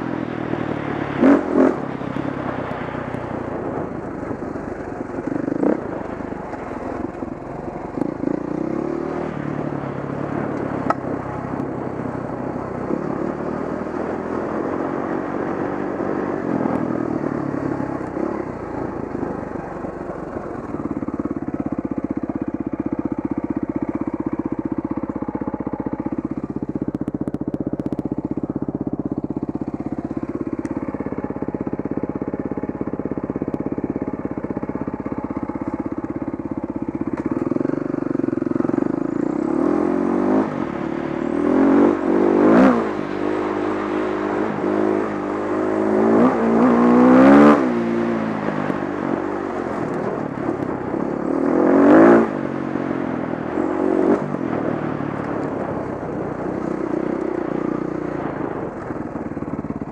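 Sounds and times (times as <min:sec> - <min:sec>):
dirt bike engine revving: 0:00.8 - 0:02.0, 0:37.2 - 0:48.2.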